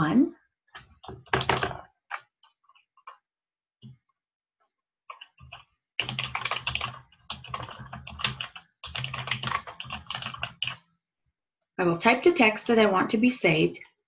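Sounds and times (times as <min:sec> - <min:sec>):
typing on a keyboard: 0:01.0 - 0:02.3, 0:05.1 - 0:10.8.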